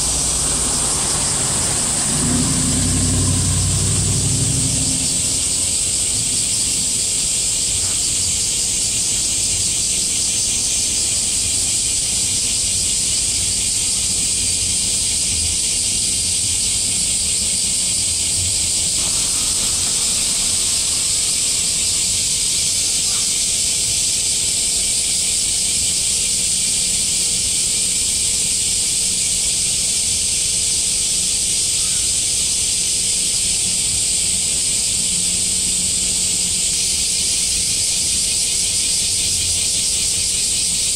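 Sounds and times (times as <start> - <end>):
low rumble: 0.0 - 7.5
cicadas droning: 0.0 - 40.9.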